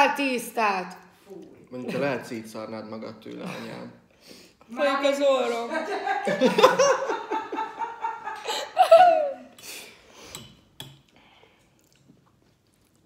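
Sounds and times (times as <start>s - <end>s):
woman laughing: 5.5s - 9.6s.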